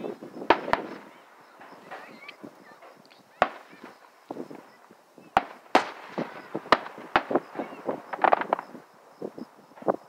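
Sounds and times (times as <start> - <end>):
firework bangs: 0.0 - 10.0
firework pops: 0.4 - 4.7, 5.3 - 8.8.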